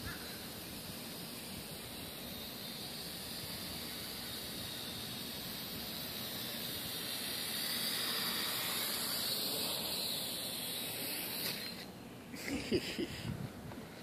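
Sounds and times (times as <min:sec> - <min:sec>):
quadcopter motors whirring: 0:00.0 - 0:13.6.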